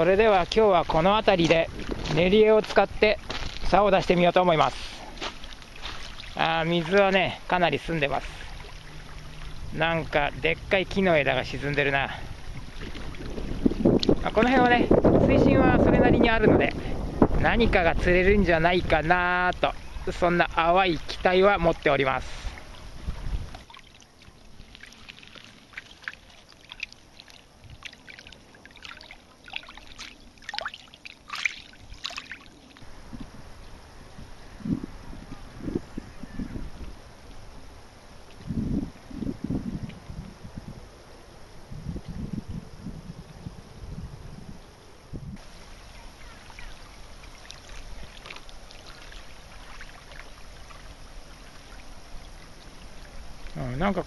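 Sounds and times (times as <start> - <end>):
small waves splashing on pebbles: 4.6 - 10.1, 23.6 - 32.8, 45.4 - 53.4.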